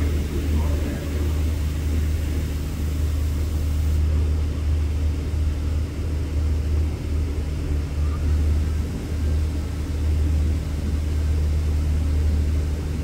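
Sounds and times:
faint steady tones: 0.0s - 6.1s
engine running low rumble: 0.0s - 13.0s.

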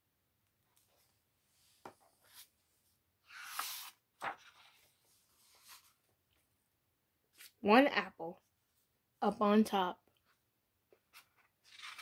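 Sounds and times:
book pages turning: 3.2s - 6.1s, 7.3s - 7.6s, 11.0s - 12.0s.

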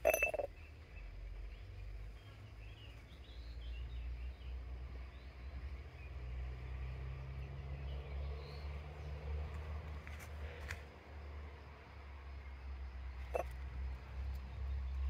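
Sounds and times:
faint bird chirps: 0.0s - 1.6s.

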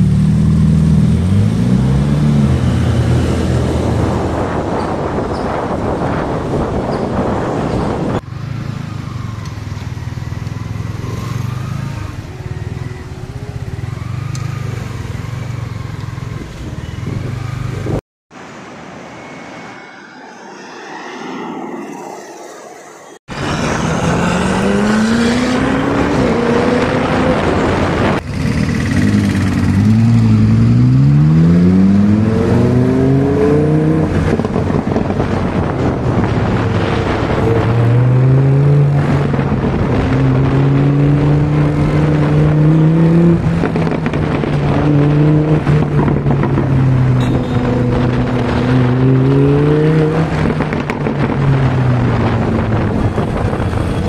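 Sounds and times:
car engine revving: 20.1s - 54.0s.

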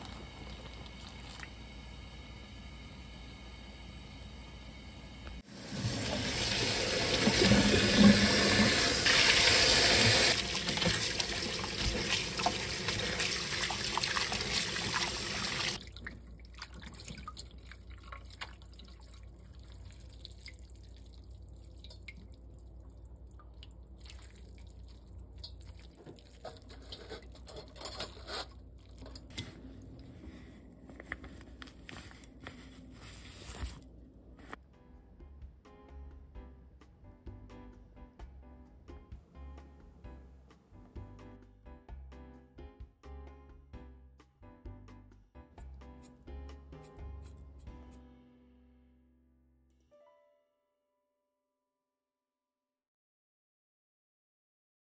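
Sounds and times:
wet handling sounds: 15.8s - 34.0s.

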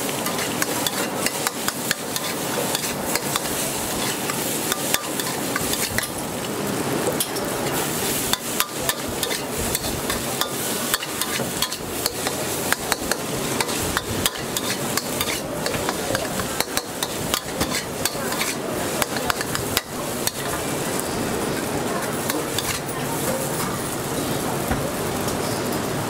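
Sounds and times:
fried rice sizzling: 0.0s - 26.0s
metal spatula scraping a wok: 0.1s - 6.2s, 8.1s - 20.6s, 22.2s - 22.9s.

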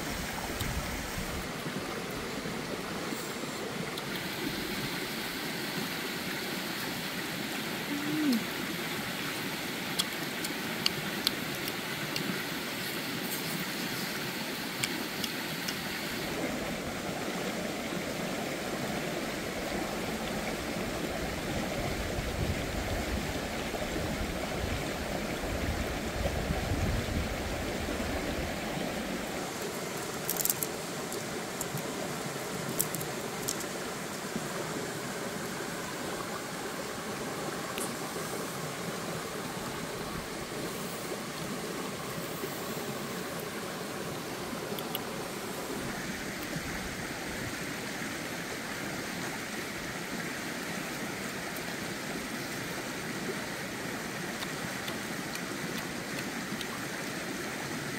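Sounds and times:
stream flowing over rapids: 0.0s - 57.9s.

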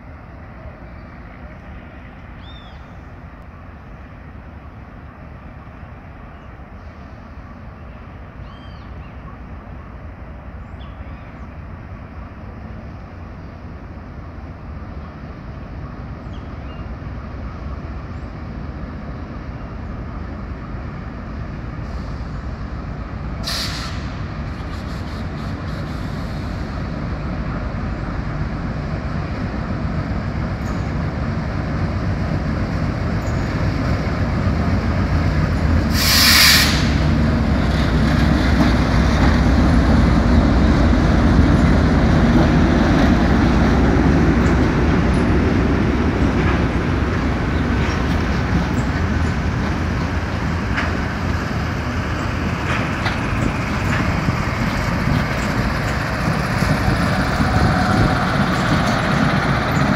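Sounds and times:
diesel locomotive engine: 0.0s - 59.9s
air hissing: 23.4s - 26.8s, 35.9s - 37.1s.

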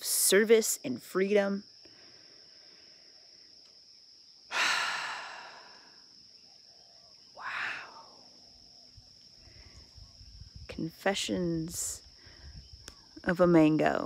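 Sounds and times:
woman sighing: 4.5s - 6.0s, 7.4s - 8.2s.

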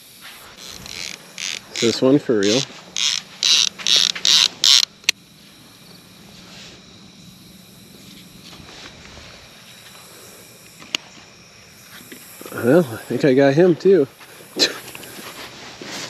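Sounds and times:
fishing reel click: 0.6s - 5.2s
fishing reel clicker buzzing: 0.6s - 5.2s.

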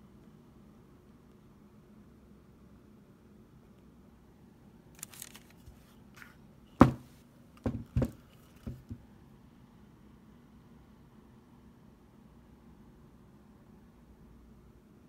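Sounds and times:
paper rustling: 5.0s - 6.4s
hammer knocking on table: 6.8s - 9.0s.

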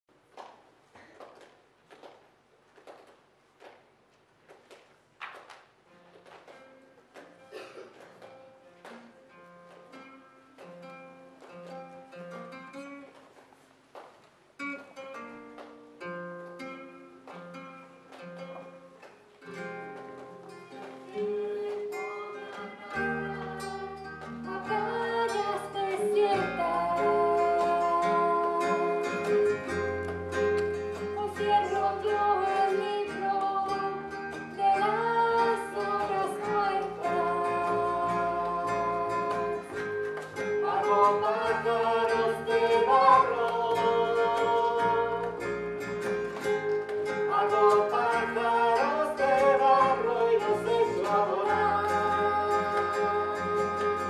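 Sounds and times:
guitar: 4.4s - 54.0s
lead singer singing: 21.1s - 29.4s, 31.1s - 39.7s, 40.4s - 45.4s, 47.1s - 54.0s.

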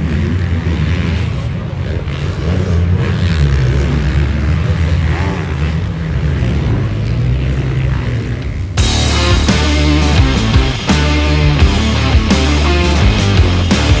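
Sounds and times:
motocross bike engines: 0.0s - 14.0s
rock music: 8.8s - 14.0s.

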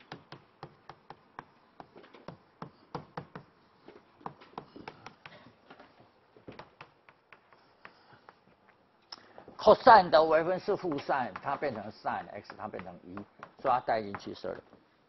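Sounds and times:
chalk tapping on blackboard: 0.0s - 5.4s, 6.5s - 8.8s, 10.6s - 14.5s.

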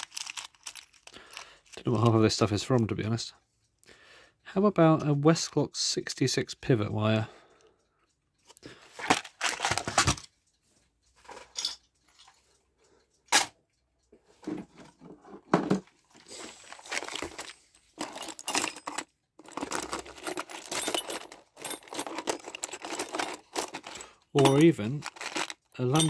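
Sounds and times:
metal parts clinking and rattling: 0.0s - 2.1s, 9.0s - 10.3s, 11.2s - 12.3s, 15.7s - 26.0s.

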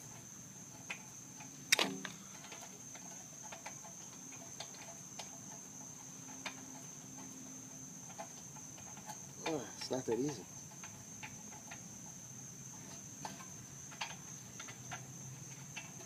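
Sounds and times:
high insect trill: 0.0s - 16.0s
sharp click: 1.7s - 2.2s.

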